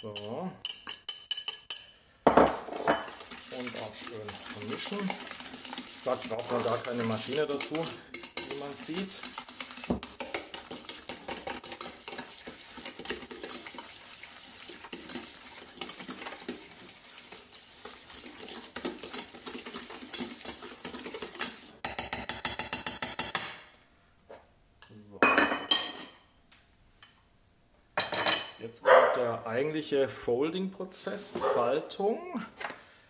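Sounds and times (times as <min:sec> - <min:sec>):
utensil scraping metal bowl: 0:00.0 - 0:23.5, 0:31.1 - 0:32.1.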